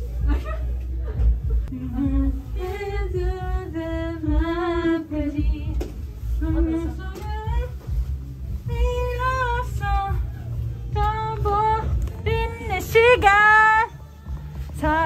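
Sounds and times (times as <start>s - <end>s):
backing music with thumping bass: 0.0s - 15.0s
woman singing karaoke: 1.2s - 15.0s.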